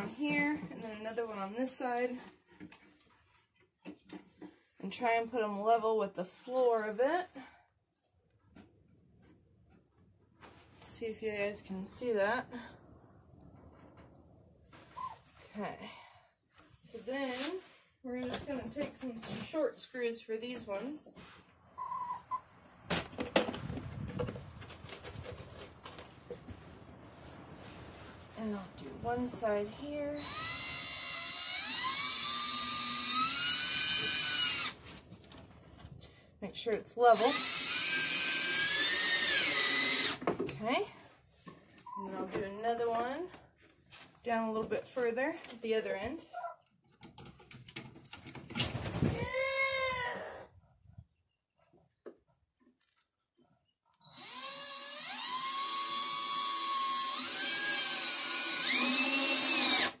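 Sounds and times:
cordless drill motor whine: 0:30.2 - 0:34.8, 0:37.2 - 0:40.2, 0:54.0 - 1:00.0.

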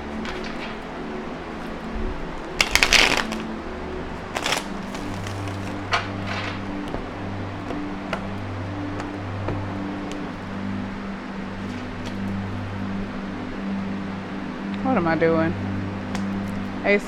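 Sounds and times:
cards being shuffled: 0:00.2 - 0:00.8, 0:02.4 - 0:03.4, 0:04.4 - 0:07.1.

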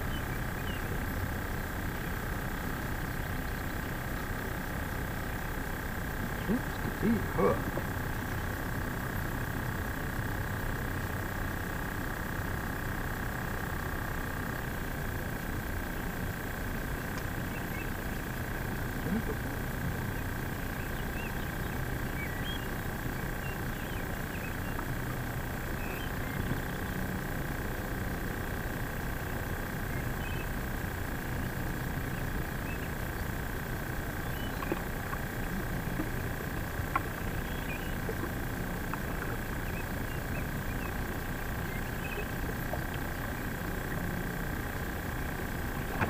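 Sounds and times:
birds chirping: 0:00.0 - 0:01.2, 0:05.4 - 0:08.4, 0:17.2 - 0:24.9, 0:25.7 - 0:27.0, 0:29.9 - 0:30.6, 0:31.2 - 0:46.0
outdoor background rumble: 0:00.0 - 0:46.0
thin steady whine: 0:00.0 - 0:46.0.

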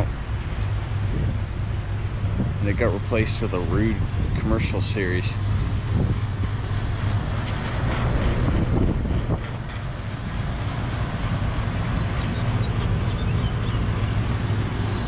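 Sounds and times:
condenser fans rushing: 0:00.0 - 0:15.0.

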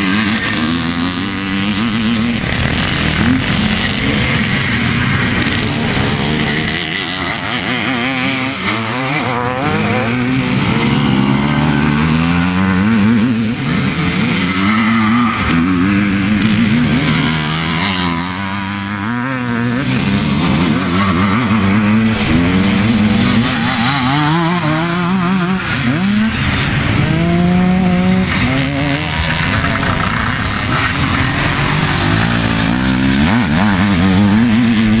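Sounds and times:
motorcycle engines revving: 0:00.0 - 0:35.0.

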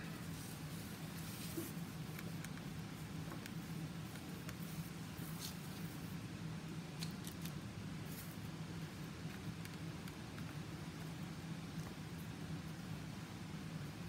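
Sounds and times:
steady low hum: 0:00.0 - 0:14.0
cardboard ticks and rustles: 0:00.8 - 0:06.0.

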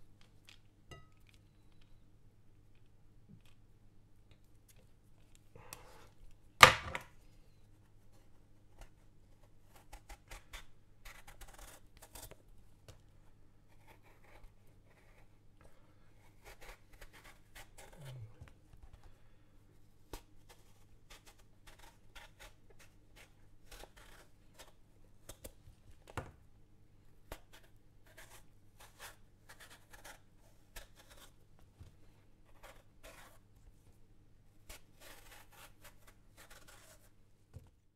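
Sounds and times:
peeler rasping eggplant skin: 0:20.2 - 0:25.5.

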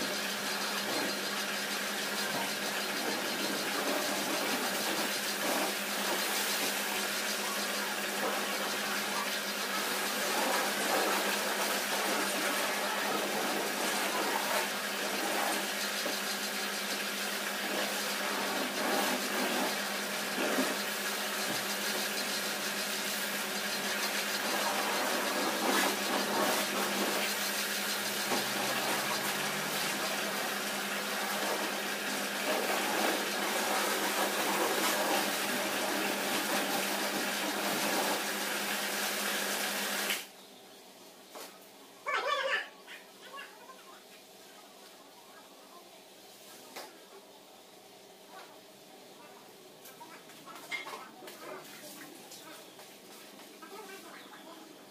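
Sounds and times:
pressure washer motor hum: 0:00.0 - 0:40.3.

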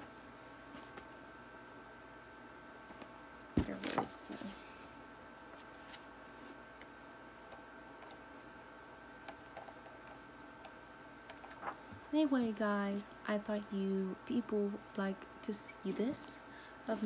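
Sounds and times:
book pages rustling: 0:00.7 - 0:01.1, 0:05.5 - 0:06.6, 0:11.4 - 0:12.1.

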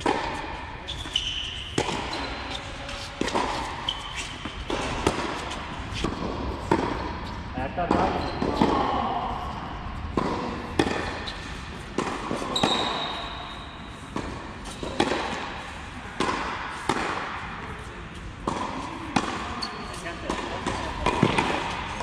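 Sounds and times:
tennis racket striking ball: 0:00.0 - 0:08.9, 0:10.0 - 0:17.8, 0:18.4 - 0:22.0
ball bouncing on court: 0:00.0 - 0:09.0, 0:10.1 - 0:13.4, 0:14.1 - 0:15.5, 0:18.4 - 0:22.0.

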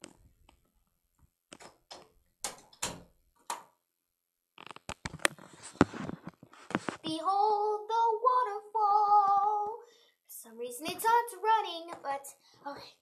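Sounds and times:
door clicks and knocks: 0:01.5 - 0:03.8
footsteps: 0:05.2 - 0:07.1.

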